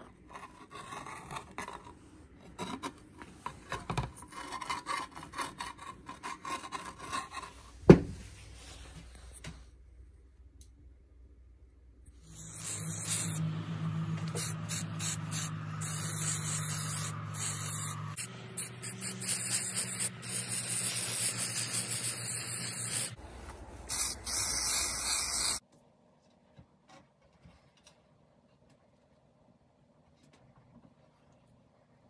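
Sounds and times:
low hum: 9.8s - 19.5s
aerosol can spraying hiss: 12.3s - 13.4s, 14.3s - 23.2s, 23.9s - 25.6s.

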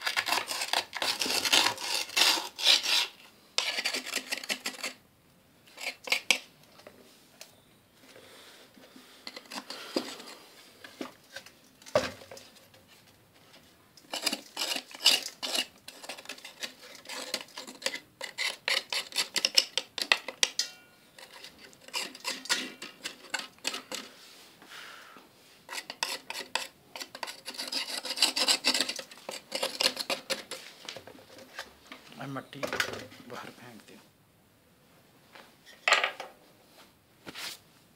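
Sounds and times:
tool scraping clay: 0.0s - 5.0s, 14.1s - 20.4s, 21.1s - 24.2s, 25.6s - 31.6s.

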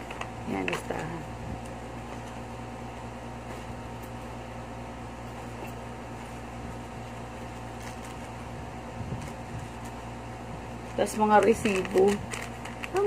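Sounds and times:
appliance mechanical hum: 0.0s - 13.0s
faint clicks and rustles: 10.8s - 13.0s.

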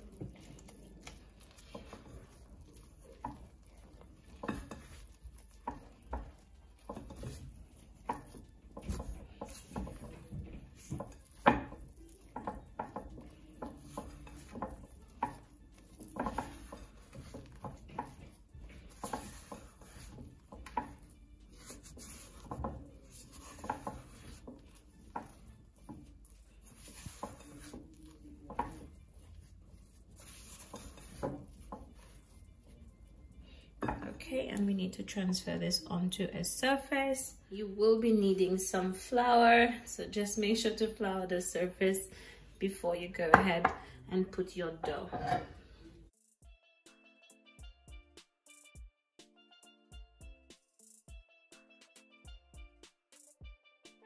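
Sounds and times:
spatula scraping glass bowl: 0.1s - 34.2s, 44.7s - 45.7s.

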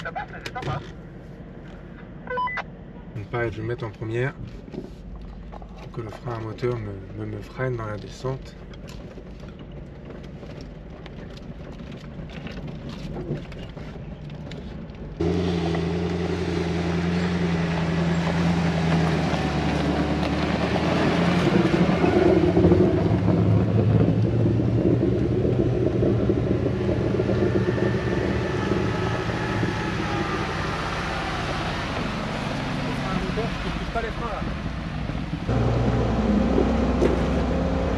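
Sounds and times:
faint in-cab engine hum: 0.0s - 37.9s
suv engines at low revs: 0.0s - 37.9s
suv passing close by: 15.2s - 37.9s.

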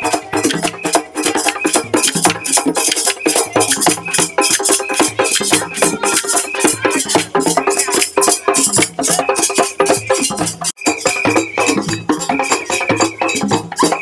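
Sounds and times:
wooden clappers striking: 0.0s - 9.2s
hand drums played fast: 0.0s - 14.0s.

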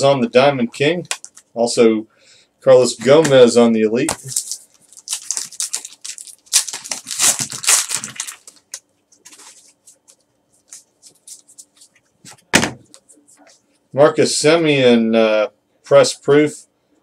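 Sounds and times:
foil wrapper tearing and crinkling: 4.2s - 10.1s.

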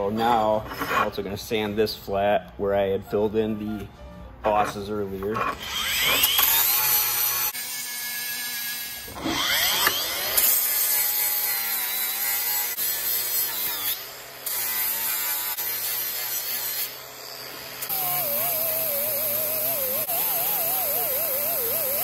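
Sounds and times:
angle grinder sanding metal: 4.5s - 22.0s.

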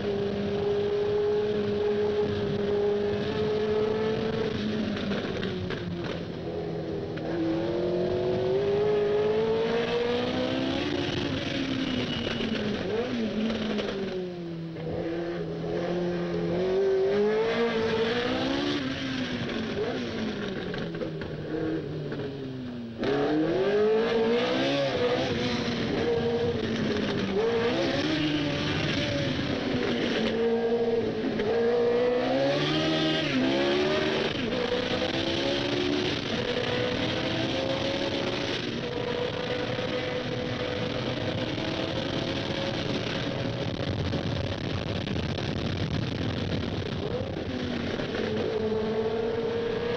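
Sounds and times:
racing engine revving: 14.9s - 20.5s, 23.0s - 43.8s, 47.0s - 49.9s.

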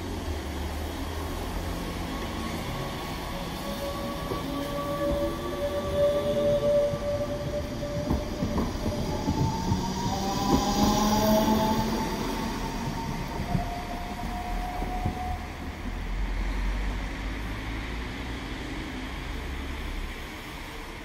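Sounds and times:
electric train whine: 0.0s - 18.0s
train low rumble: 0.0s - 21.0s.

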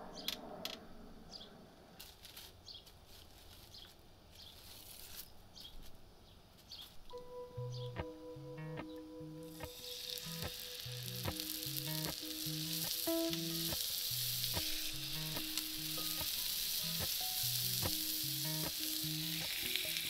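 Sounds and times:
fish sizzling in hot oil: 9.6s - 20.0s.

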